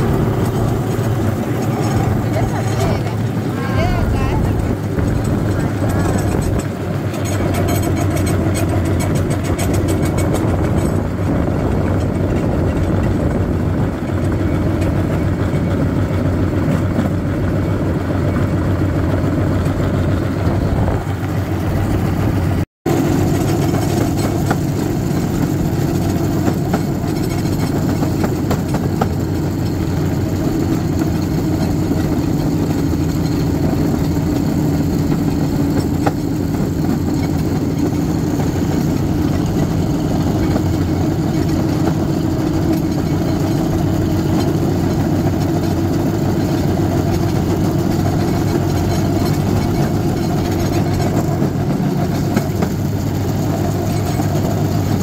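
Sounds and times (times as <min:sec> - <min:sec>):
cart rolling on rails: 0:00.0 - 0:55.0
small engine running: 0:00.0 - 0:55.0.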